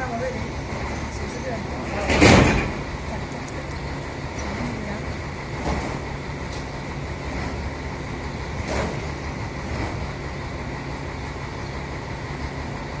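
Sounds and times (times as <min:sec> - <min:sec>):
diesel engine idling: 0:00.0 - 0:13.0
metal clank: 0:01.9 - 0:02.9.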